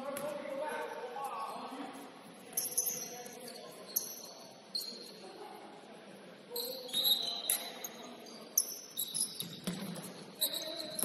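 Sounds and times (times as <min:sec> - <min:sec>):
sneakers squeaking on gym floor: 0:02.5 - 0:05.2, 0:06.5 - 0:11.0.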